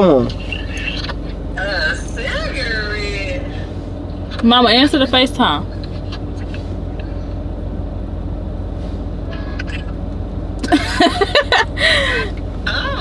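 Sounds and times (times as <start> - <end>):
voices: 0.0 - 7.5, 10.6 - 13.0
car engine idling: 0.0 - 13.0.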